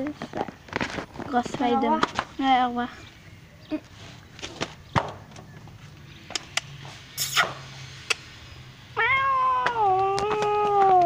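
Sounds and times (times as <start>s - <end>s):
cat meowing long: 9.0s - 11.0s.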